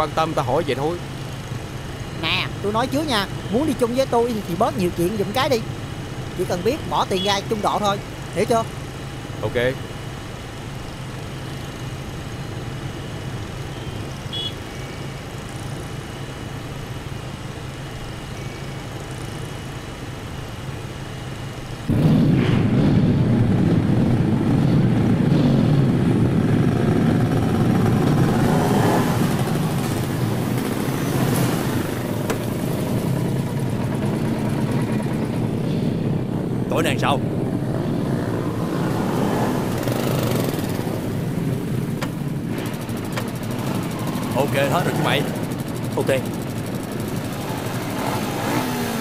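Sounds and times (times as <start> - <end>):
motorbikes passing and revving: 0.0 - 49.0
motorbike engine running: 23.2 - 49.0.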